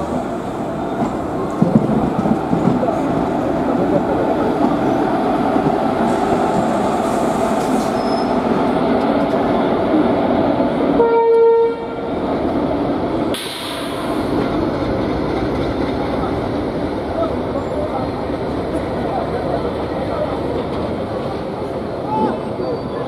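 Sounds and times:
train wheels rumbling on rail: 0:00.0 - 0:23.0
train horn blast: 0:11.0 - 0:12.1.

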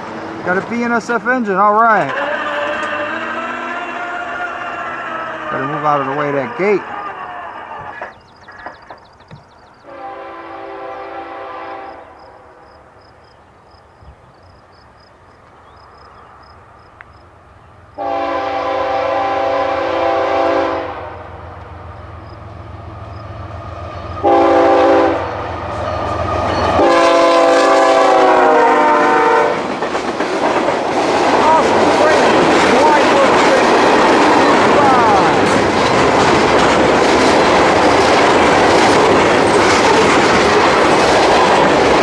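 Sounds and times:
locomotive rumble: 0:00.0 - 0:12.2, 0:13.6 - 0:42.0
locomotive air horn blasts: 0:02.1 - 0:06.1, 0:09.9 - 0:12.6, 0:18.0 - 0:21.3, 0:24.2 - 0:25.4, 0:26.8 - 0:29.6.

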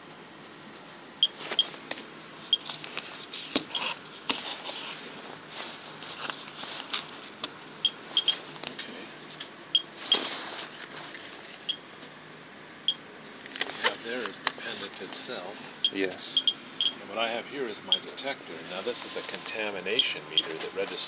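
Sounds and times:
radiation meter chirps: 0:01.2 - 0:01.8, 0:02.5 - 0:02.7, 0:07.8 - 0:08.5, 0:09.7 - 0:10.3, 0:11.6 - 0:11.9, 0:12.8 - 0:13.1, 0:15.8 - 0:17.0, 0:17.9 - 0:18.1, 0:19.9 - 0:20.8
gift box rustling and scraping: 0:02.6 - 0:08.6, 0:10.0 - 0:11.6, 0:13.6 - 0:15.4, 0:18.5 - 0:19.4.

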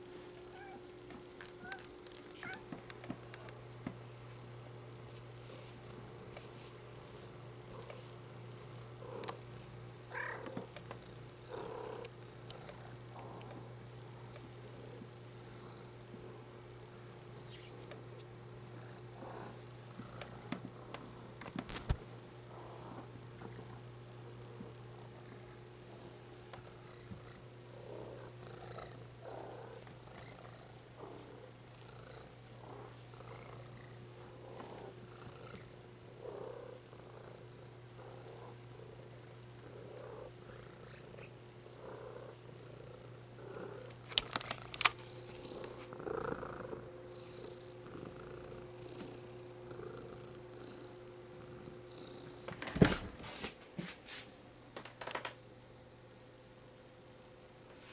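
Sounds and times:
steady low hum: 0:00.0 - 0:57.9
cat purring: 0:08.7 - 0:17.7, 0:18.5 - 0:21.4, 0:22.5 - 0:52.5.

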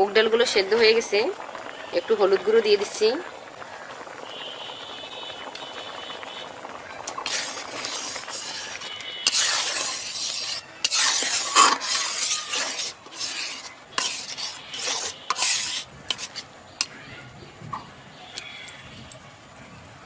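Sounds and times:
metal spatula stirring in a pan: 0:07.1 - 0:17.0.

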